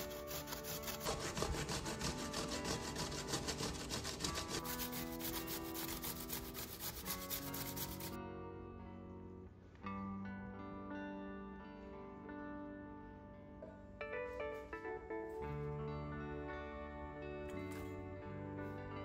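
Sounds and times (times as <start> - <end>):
potato grating on metal grater: 0.0 - 8.2
soft guitar music: 1.7 - 19.0.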